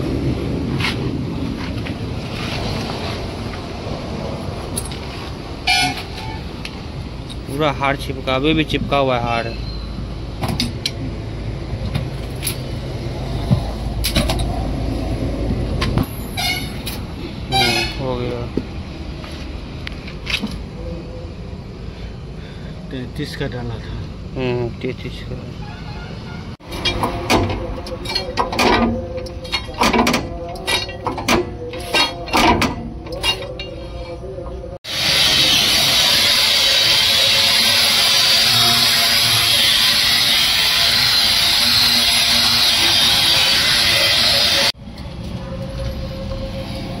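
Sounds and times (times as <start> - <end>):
metal tools clanking on wheel: 26.6 - 34.2.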